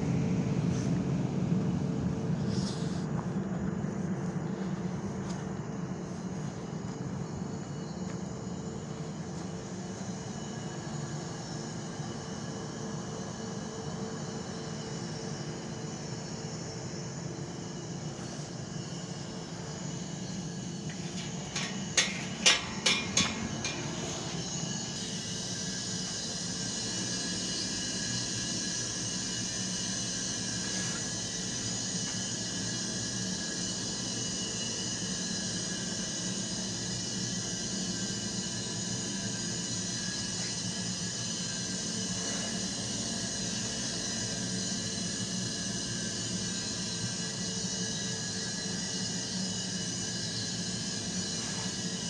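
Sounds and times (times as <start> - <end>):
faint constant hum: 0.0 - 52.0
low mechanical drone: 0.0 - 52.0
sharp clicks and knocks: 21.1 - 24.0.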